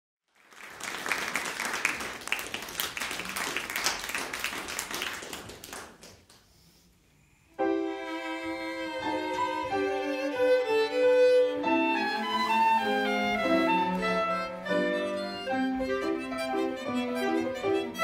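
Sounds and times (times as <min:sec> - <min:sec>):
audience applause: 0:00.3 - 0:06.4
violin long bowed note: 0:07.6 - 0:18.0.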